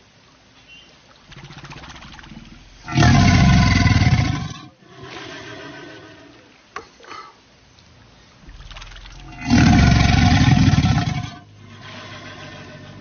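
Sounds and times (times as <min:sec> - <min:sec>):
crocodilian growling: 0:01.3 - 0:06.6, 0:08.6 - 0:13.0.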